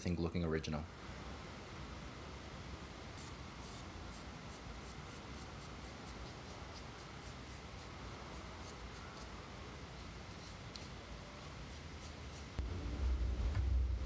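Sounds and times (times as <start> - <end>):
low steady hum: 0.0 - 14.0
bristle brush scratching on wood: 3.2 - 12.6.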